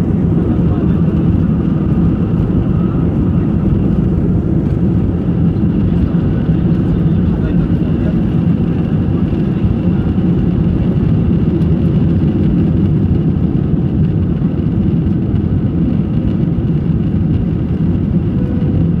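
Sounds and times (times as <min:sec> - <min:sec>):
jet engines roaring: 0:00.0 - 0:19.0
faint high whine: 0:18.3 - 0:19.0.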